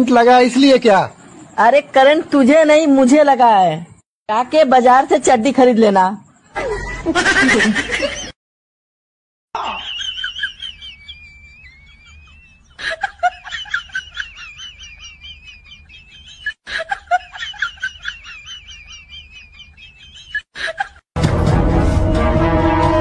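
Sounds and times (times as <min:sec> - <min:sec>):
high-pitched chirping and trilling: 0:09.6 - 0:16.6, 0:17.4 - 0:20.5.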